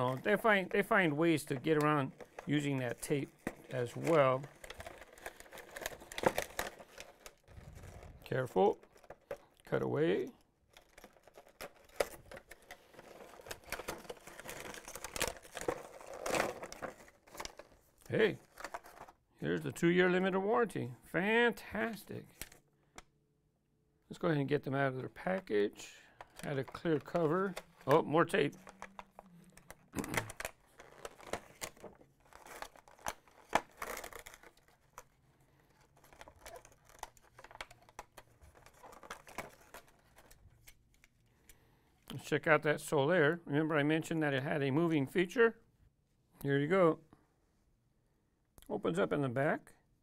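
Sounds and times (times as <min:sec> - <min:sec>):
cardboard and plastic crinkling: 0:00.0 - 0:19.2, 0:26.2 - 0:40.7.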